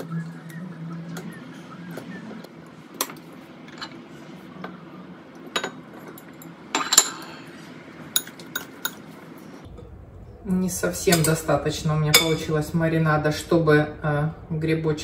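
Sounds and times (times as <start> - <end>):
faint low hum: 0.0 - 15.0
kitchenware clinking: 2.9 - 4.8, 5.4 - 9.1, 12.1 - 12.6.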